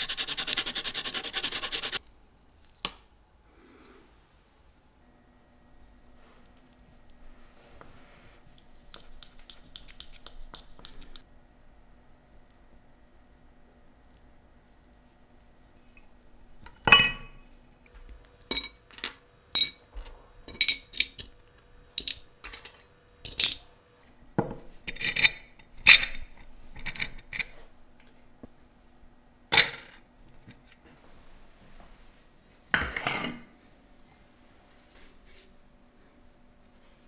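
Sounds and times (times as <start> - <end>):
small metal parts clinking: 18.5 - 19.8, 20.5 - 21.4, 22.0 - 23.7.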